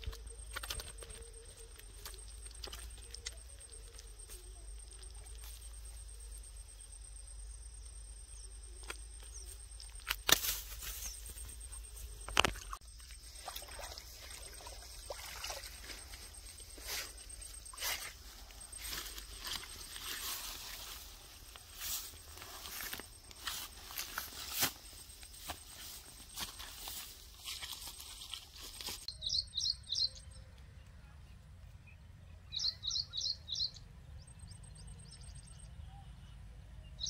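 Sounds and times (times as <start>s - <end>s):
hands handling fish: 0.0s - 5.8s
faint steady high whine: 0.0s - 27.2s
grass rustling underfoot: 8.8s - 29.1s.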